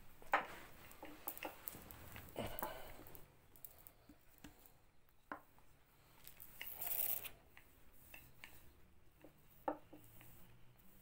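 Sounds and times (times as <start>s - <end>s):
rustling scrape: 0.3s - 2.3s.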